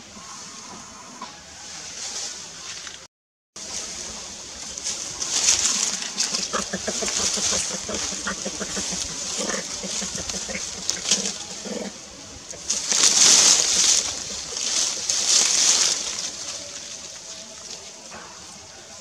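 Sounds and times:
forest background hiss: 0.0s - 3.0s, 3.6s - 19.0s
macaques giving short low calls: 5.4s - 16.4s.

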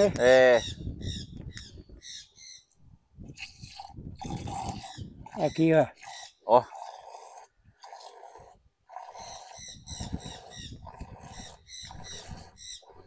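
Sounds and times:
milk squirting into a glass: 3.4s - 5.0s.

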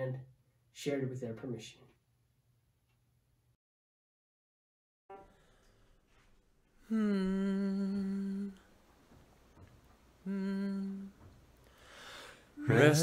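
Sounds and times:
person humming a note: 6.8s - 8.7s, 10.2s - 11.2s.

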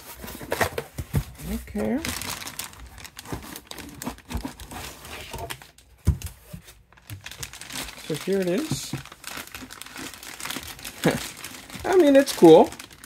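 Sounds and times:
plastic bag crinkling: 1.5s - 6.0s, 6.7s - 13.0s.

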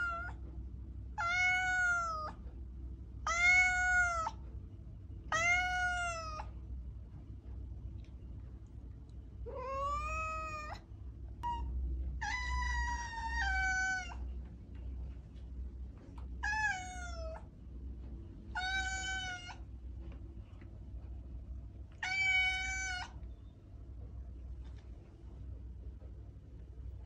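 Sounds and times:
cat meowing: 0.0s - 0.4s, 1.2s - 2.4s, 3.2s - 4.4s, 5.3s - 6.5s, 9.4s - 10.8s, 11.4s - 14.3s, 16.4s - 17.5s, 18.5s - 19.6s, 22.0s - 23.2s
steady low hum: 0.0s - 27.0s.

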